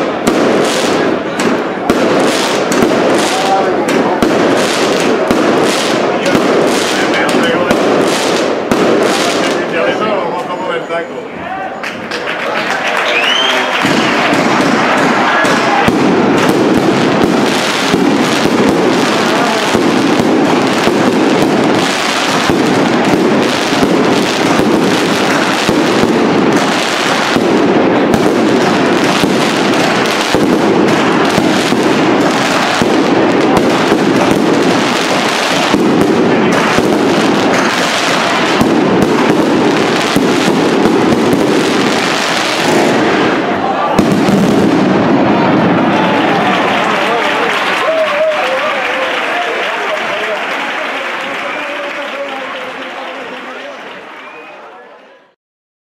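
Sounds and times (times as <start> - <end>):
heavy firework bangs: 0.0 - 10.2, 13.7 - 48.1
crackling pops: 13.8 - 43.4
firework shells bursting: 13.8 - 45.8.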